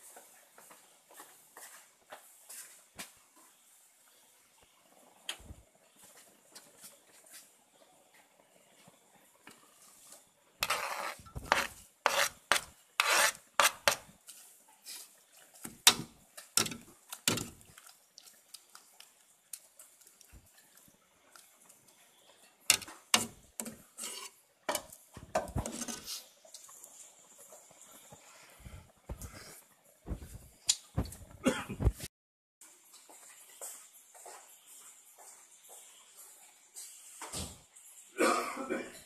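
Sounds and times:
metal ladle scraping a pot: 10.6 - 14.0, 22.7 - 24.4.

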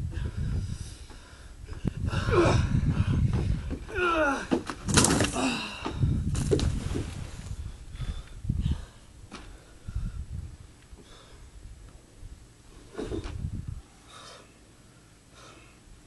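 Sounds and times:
wind rumbling on microphone: 0.0 - 14.0
body landing with heavy thud: 3.3 - 7.2.

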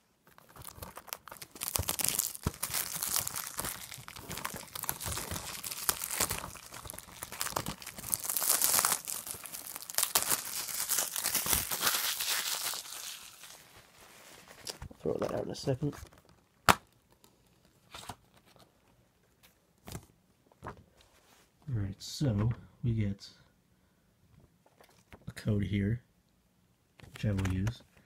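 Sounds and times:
plastic shrink-wrap crinkling: 0.2 - 17.9.

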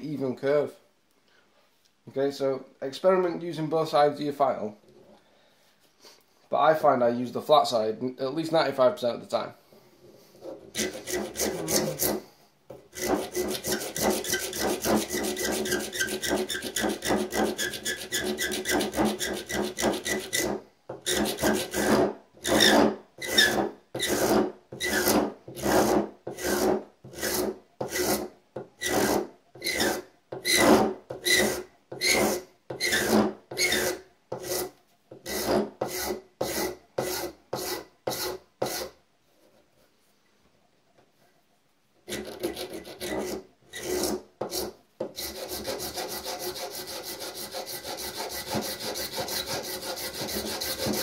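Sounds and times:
hand file rasping: 10.4 - 12.3, 12.9 - 39.0, 42.1 - 51.0.

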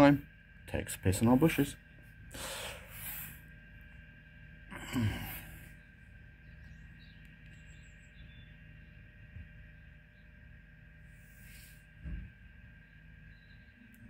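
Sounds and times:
faint steady hum: 0.0 - 14.0
person exhaling: 2.3 - 3.4, 4.7 - 5.7
breathy sigh: 4.7 - 5.7.

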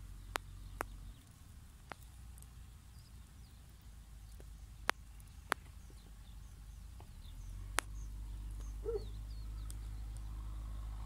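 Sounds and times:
faint bird chirps: 0.0 - 11.0
low rumble: 0.0 - 11.0
sharp clicks: 4.3 - 10.3.

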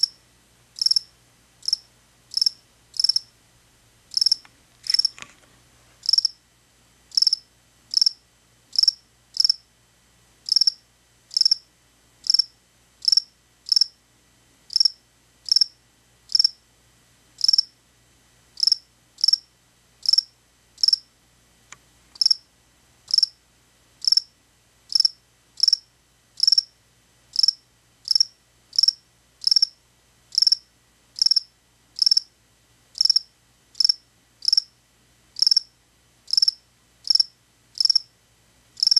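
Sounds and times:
cricket chirping: 0.0 - 0.2, 0.8 - 3.3, 4.1 - 5.1, 6.0 - 6.4, 7.1 - 9.6, 10.5 - 14.0, 14.7 - 16.6, 17.4 - 17.8, 18.6 - 21.1, 22.2 - 22.4, 23.1 - 23.4, 24.0 - 24.3, 24.9 - 26.7, 27.3 - 32.3, 33.0 - 34.7, 35.4 - 35.7, 36.3 - 38.1.

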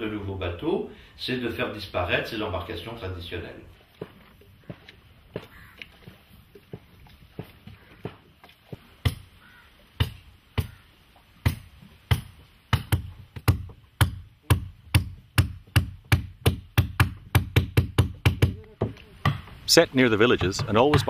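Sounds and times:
hammering on wooden hull: 11.4 - 19.6, 20.2 - 21.0.

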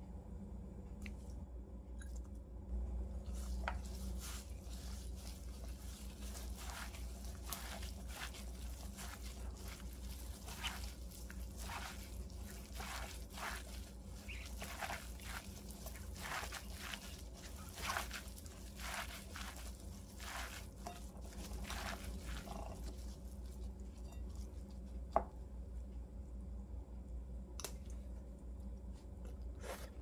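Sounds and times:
faint low hum: 0.0 - 30.0
hand squishing wet greens: 3.0 - 25.5.

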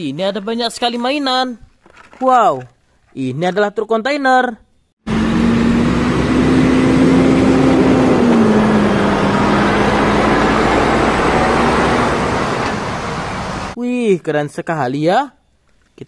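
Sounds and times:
diesel truck engine humming: 5.1 - 13.8
tyre and road noise: 5.1 - 13.8.

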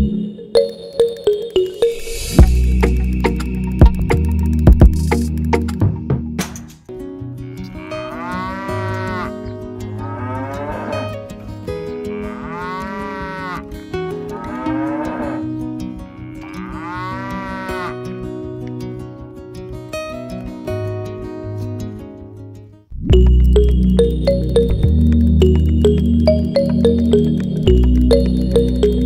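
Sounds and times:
background music: 0.0 - 21.2, 23.0 - 29.0
cattle mooing: 7.4 - 15.5, 16.1 - 18.2.

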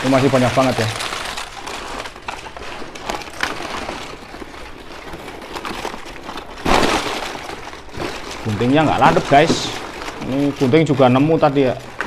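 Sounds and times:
paper bags rustling: 0.0 - 12.0.

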